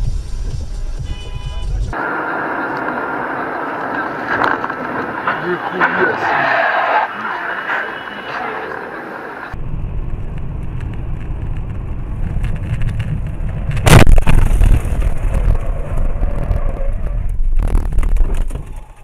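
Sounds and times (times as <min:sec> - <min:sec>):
road and engine rumble: 0:00.0 - 0:19.0
loud crash bang: 0:13.8 - 0:15.6.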